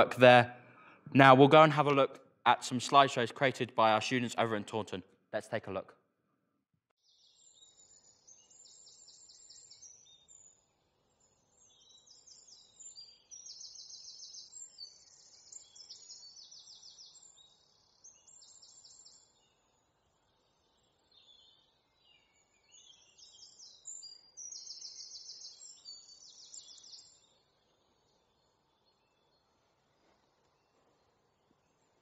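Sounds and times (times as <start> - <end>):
songbird trills and chirps: 7.0 - 32.0
faint background hiss: 26.9 - 32.0.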